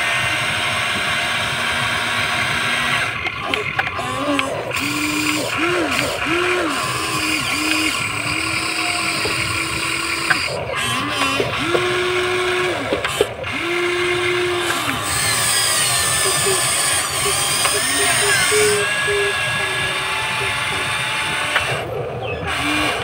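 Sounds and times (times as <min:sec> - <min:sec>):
toy excavator electric motors whining: 0:00.0 - 0:23.0.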